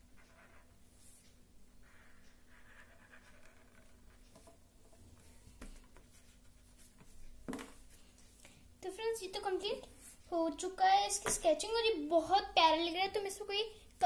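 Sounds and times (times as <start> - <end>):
pen scratching on paper: 1.8 - 4.1.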